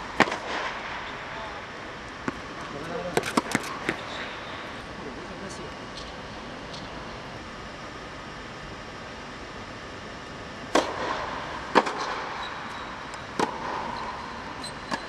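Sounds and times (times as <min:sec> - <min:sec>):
tennis ball bouncing on hard court: 0:02.2 - 0:02.4, 0:03.1 - 0:04.0
tennis ball struck by racket: 0:03.1 - 0:04.0, 0:10.7 - 0:12.1.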